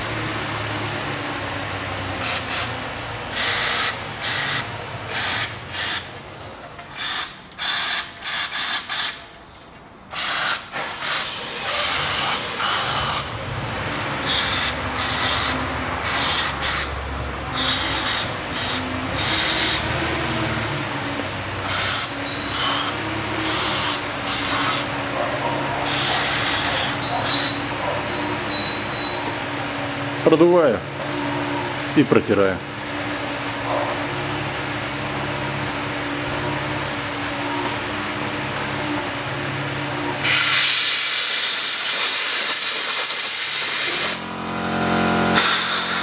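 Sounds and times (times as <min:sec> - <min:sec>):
aerosol spray hissing bursts: 0:02.2 - 0:06.1, 0:06.9 - 0:09.2, 0:10.1 - 0:13.3, 0:14.2 - 0:17.0, 0:17.6 - 0:19.9, 0:21.6 - 0:24.9, 0:40.2 - 0:44.2, 0:45.4 - 0:46.0.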